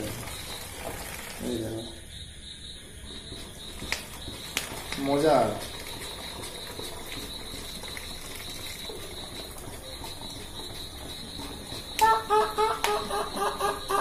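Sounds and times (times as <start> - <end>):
water flowing into plastic bottle: 0.0 - 1.9, 3.6 - 11.1.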